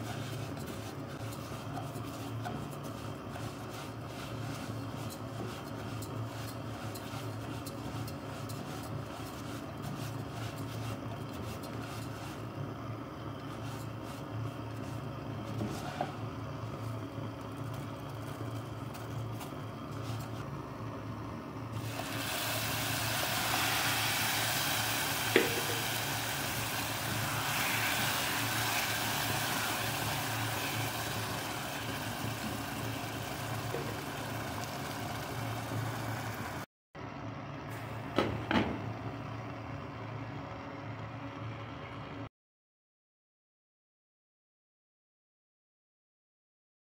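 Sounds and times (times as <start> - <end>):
spatula scraping rice in a pot: 0.0 - 12.5, 13.4 - 16.2
broth sizzling on hot rice: 0.0 - 12.6, 21.8 - 36.7.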